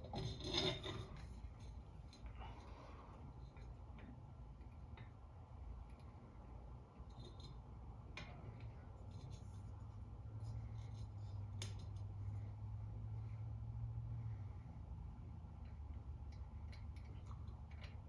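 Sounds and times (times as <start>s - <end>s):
glass and metal scraping: 0.0s - 1.6s
low steady hum: 0.0s - 18.0s.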